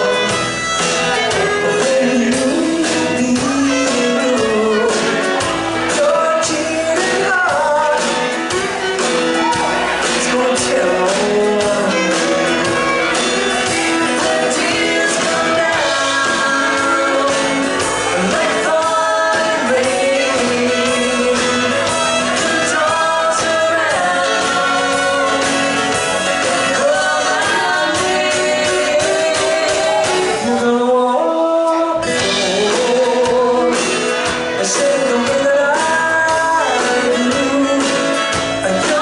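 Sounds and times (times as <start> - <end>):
fiddle playing: 0.0 - 30.4
acoustic guitar strumming: 0.0 - 39.0
woman singing: 1.1 - 8.4, 10.1 - 39.0.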